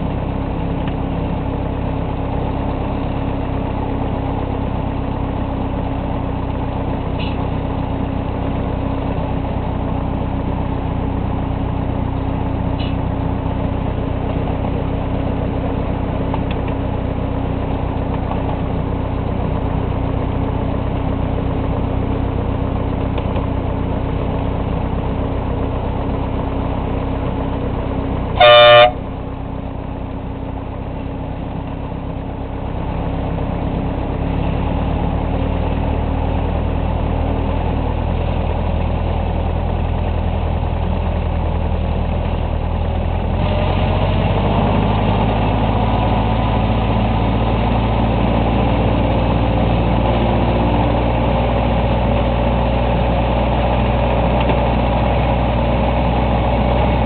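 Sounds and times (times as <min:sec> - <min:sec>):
short horn blast: 0:28.4 - 0:29.2.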